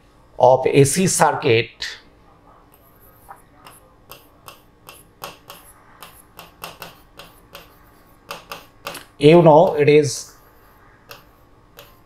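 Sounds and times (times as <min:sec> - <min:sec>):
pen tapping on writing surface: 0:03.6 - 0:09.0, 0:11.1 - 0:12.0.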